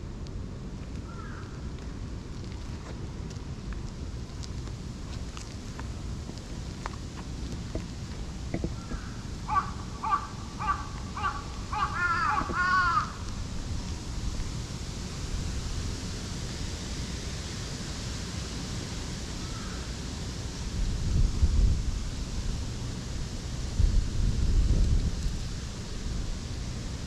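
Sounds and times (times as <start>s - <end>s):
animal calls: 8.8s - 13.2s.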